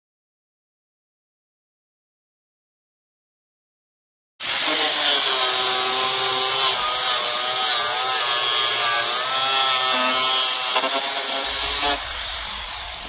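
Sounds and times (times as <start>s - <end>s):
angle grinder motor whine: 4.4s - 13.0s
hiss of cutting metal: 11.2s - 13.0s.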